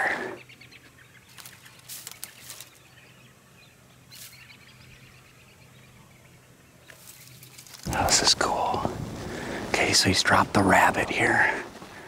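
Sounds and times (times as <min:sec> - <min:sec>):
faint rustles and clicks: 0:01.2 - 0:03.0, 0:06.8 - 0:09.7.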